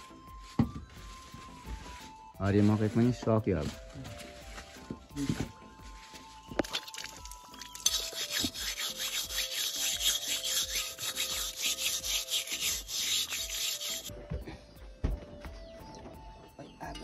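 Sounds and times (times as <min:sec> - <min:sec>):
scrubbing metal pot: 0:06.6 - 0:14.1.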